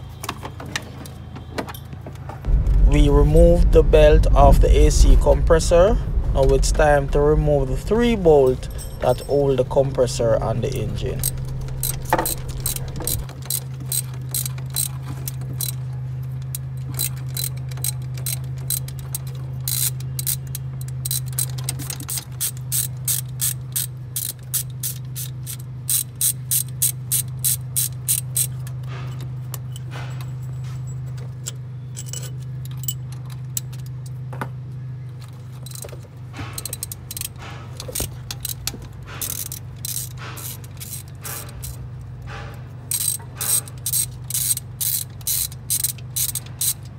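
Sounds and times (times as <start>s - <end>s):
steady low hum: 2.4s - 14.6s, 34.8s - 46.9s
ratchet wrench clicking: 11.0s - 15.8s, 16.5s - 28.7s, 36.6s - 41.9s, 42.9s - 46.9s.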